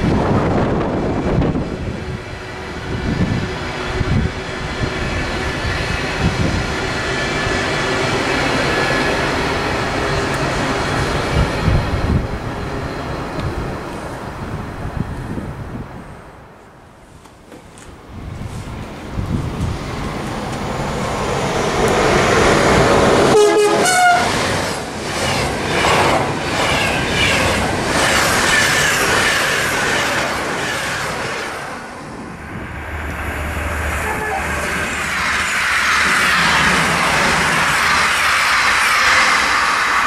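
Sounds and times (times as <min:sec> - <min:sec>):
train passing with wheel noise: 0:00.0 - 0:40.0
train horn blast: 0:23.2 - 0:24.4, 0:33.8 - 0:34.7.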